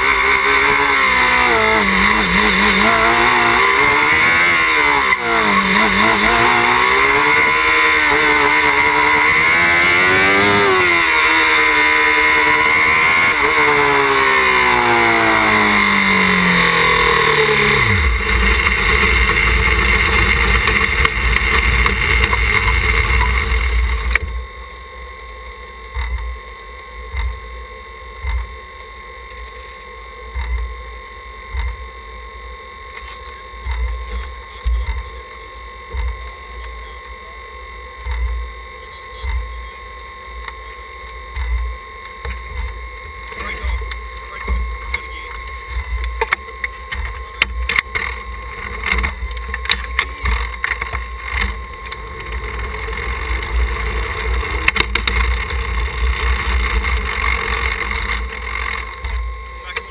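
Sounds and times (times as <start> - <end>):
race car engine revving: 0.0 - 24.2
tyre and road noise: 0.0 - 24.4.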